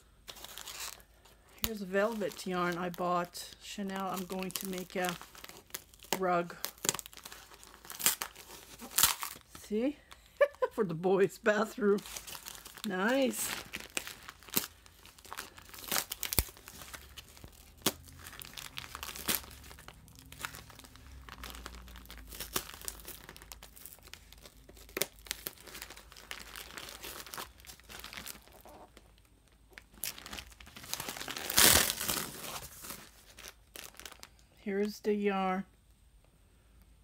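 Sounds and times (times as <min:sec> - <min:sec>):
plastic bags crinkling: 0:00.0 - 0:10.8, 0:11.6 - 0:34.5
cardboard tearing: 0:00.3 - 0:01.0, 0:04.2 - 0:09.5, 0:12.0 - 0:28.8, 0:30.0 - 0:34.2.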